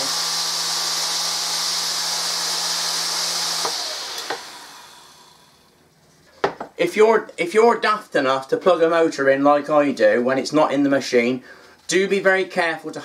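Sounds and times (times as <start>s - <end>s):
vacuum motor whine: 0.0s - 5.7s.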